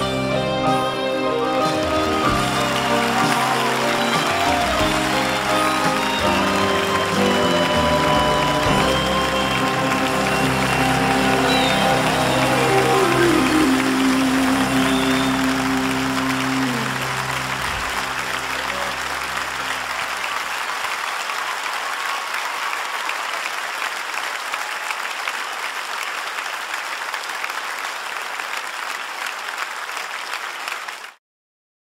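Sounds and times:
held musical chord: 0.0 - 20.1
audience applauding: 0.0 - 31.2.

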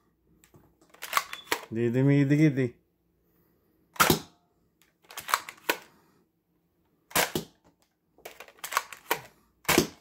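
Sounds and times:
toy blaster clicks and snaps: 4.8 - 5.9, 8.3 - 10.0.

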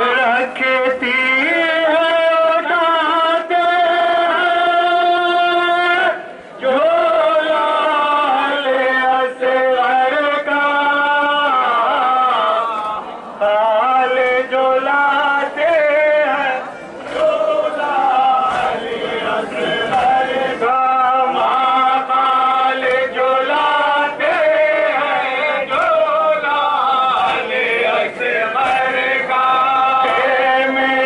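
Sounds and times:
man chanting a lament: 0.0 - 31.0.

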